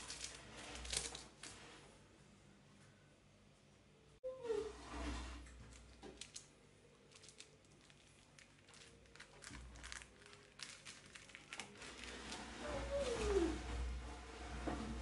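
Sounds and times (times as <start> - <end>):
plastic film crinkling: 0.0 - 1.6, 5.7 - 13.5.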